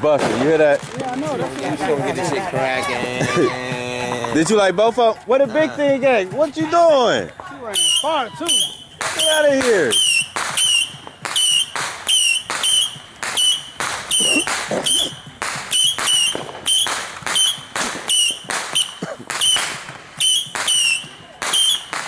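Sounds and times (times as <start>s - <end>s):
firework cracks with whistle: 7.6s - 22.0s.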